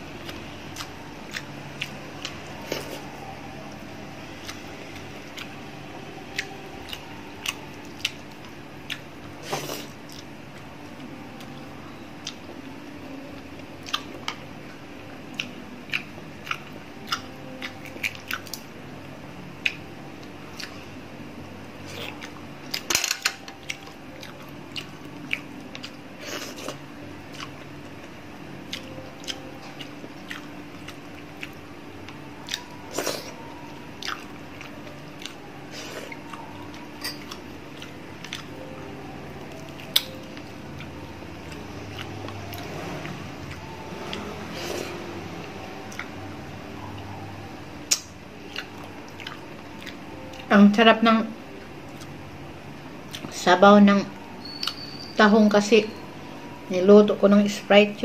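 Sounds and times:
person chewing: 0.2s - 3.1s, 4.4s - 5.6s, 6.2s - 10.7s, 12.2s - 12.8s, 13.4s - 18.7s, 19.6s - 20.9s, 21.8s - 22.9s, 23.6s - 46.2s, 47.9s - 50.5s.

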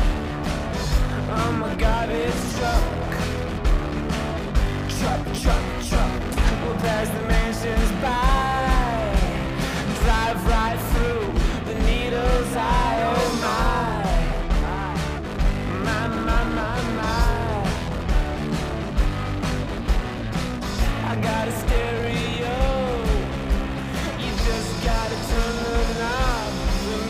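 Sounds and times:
drums: 0.0s - 27.0s
electric guitar: 0.0s - 27.0s
man singing: 0.7s - 3.4s, 4.6s - 18.0s, 20.7s - 27.0s.

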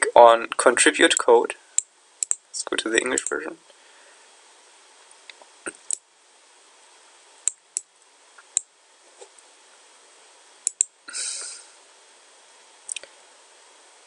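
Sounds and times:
faint steady hiss: 0.0s - 14.0s
computer mouse clicks: 1.8s - 2.4s, 10.6s - 10.9s.

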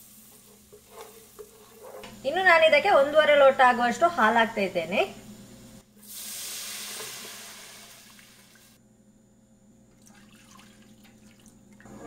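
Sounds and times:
milk hissing in hot pan: 5.9s - 8.8s
liquid pouring: 9.9s - 12.0s.

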